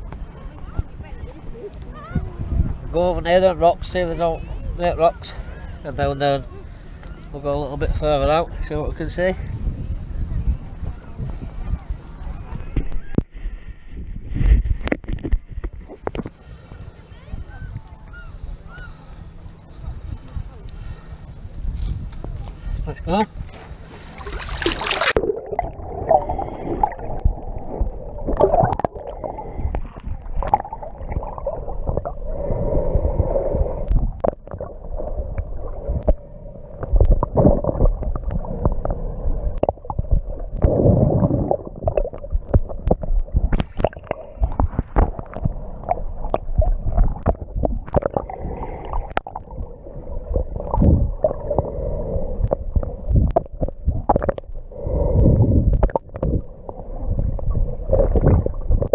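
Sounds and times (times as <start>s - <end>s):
underwater rumbling and gurgling: 0.0s - 7.1s, 9.4s - 58.9s.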